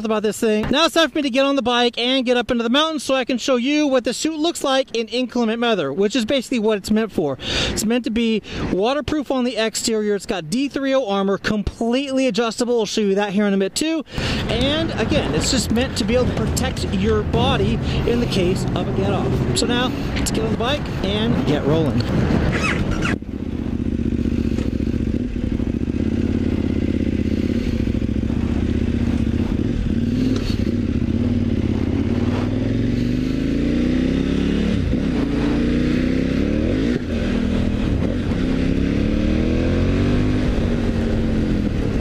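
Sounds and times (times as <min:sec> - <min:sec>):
motorcycle engine running: 0:14.2 - 0:42.0.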